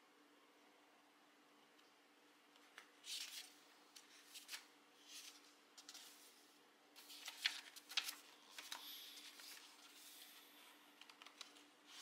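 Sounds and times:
book pages turning: 2.7s - 6.4s, 7.0s - 12.0s.

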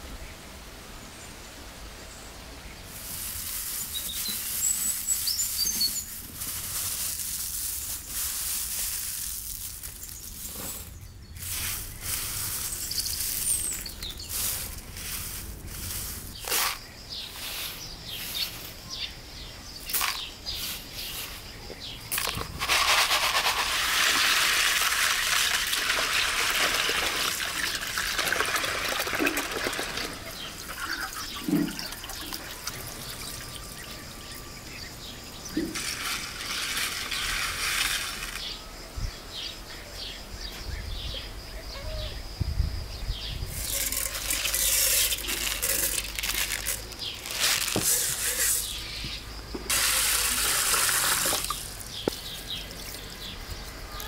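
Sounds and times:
water poured into metal pot: 23.6s - 32.8s
tap water splashing over grain: 24.0s - 32.8s, 49.0s - 52.2s.

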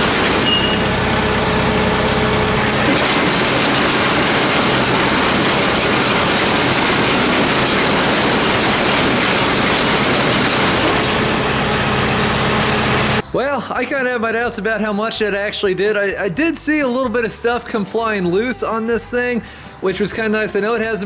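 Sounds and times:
baler mechanical clatter: 0.0s - 13.2s.

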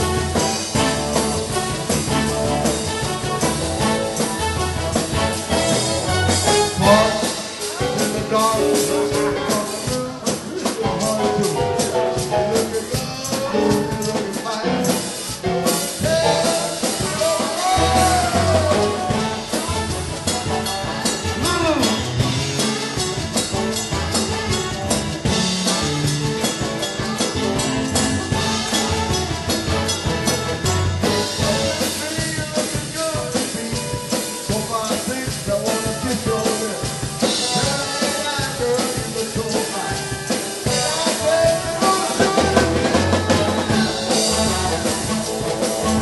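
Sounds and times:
drum kit beat: 0.0s - 46.0s
live band playing: 0.0s - 46.0s
man singing: 5.4s - 22.4s, 31.0s - 46.0s.

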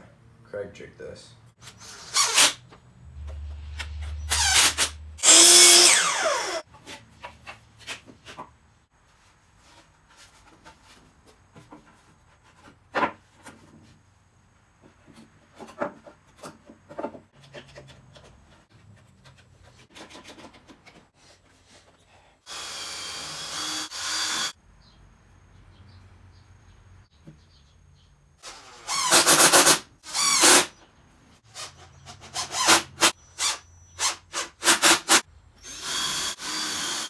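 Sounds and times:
cordless drill driving screws: 4.2s - 6.6s, 22.5s - 24.5s, 28.4s - 30.7s, 32.4s - 37.0s.

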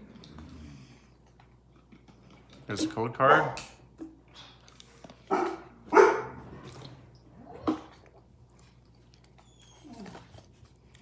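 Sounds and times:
dog barking: 5.3s - 6.4s.

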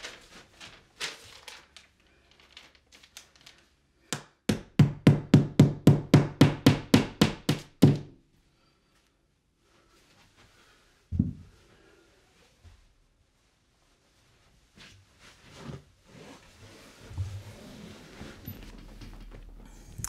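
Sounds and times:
paper rustling: 0.0s - 3.8s.

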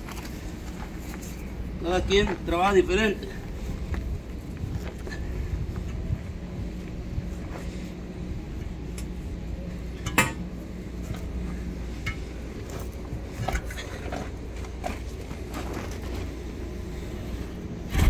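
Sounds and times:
low steady hum: 0.0s - 18.0s
metal tire tools clanking: 10.0s - 10.4s.

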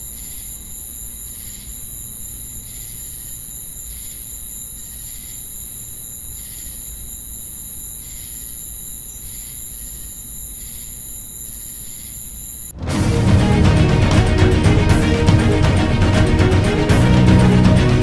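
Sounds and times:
insects chirring: 0.0s - 12.8s
low rumble: 12.8s - 18.0s.

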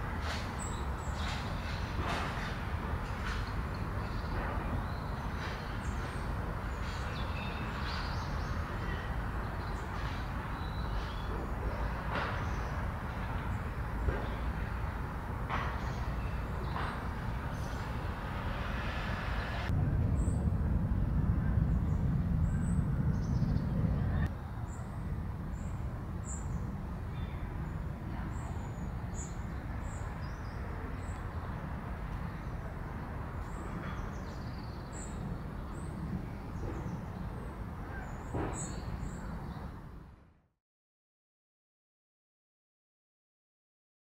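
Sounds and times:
small birds chirping: 3.3s - 15.0s, 15.7s - 19.6s
low rumble: 17.6s - 26.0s.

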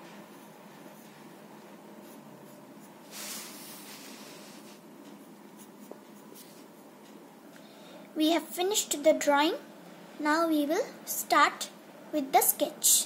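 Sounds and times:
pencil scratching on paper: 2.0s - 6.9s.

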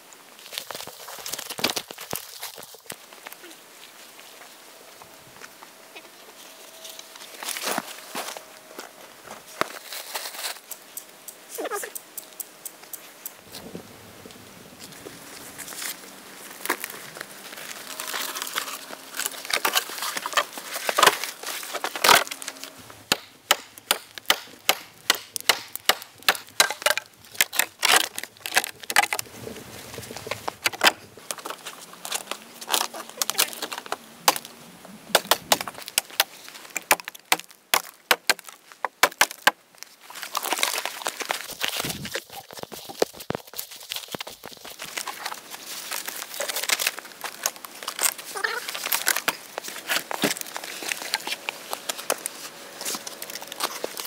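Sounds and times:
dead branches snapping: 15.6s - 29.2s, 35.1s - 54.0s.

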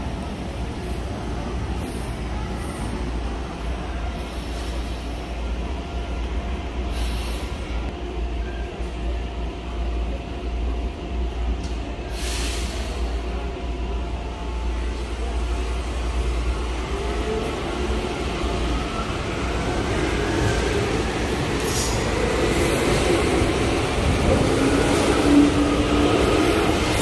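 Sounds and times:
metro train rumbling: 0.0s - 27.0s
train brake hisses: 6.9s - 7.7s, 12.1s - 13.2s.

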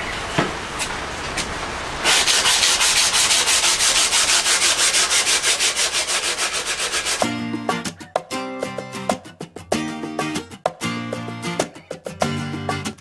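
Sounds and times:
sanding block rubbing wood: 2.0s - 7.3s
plucked guitar music: 7.2s - 13.0s.

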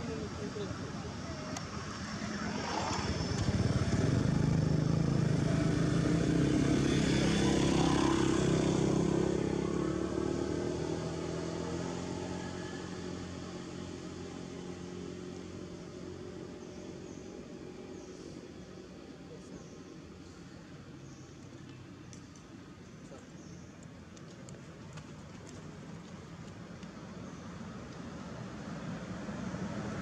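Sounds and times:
vehicle engine passing by: 1.6s - 18.9s.

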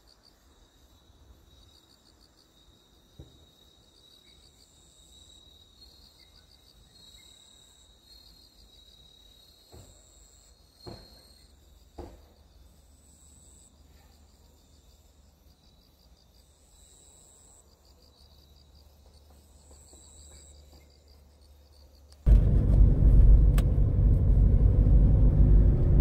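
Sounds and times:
insects chirping: 0.0s - 22.3s
car rumbling on a road: 22.3s - 26.0s.

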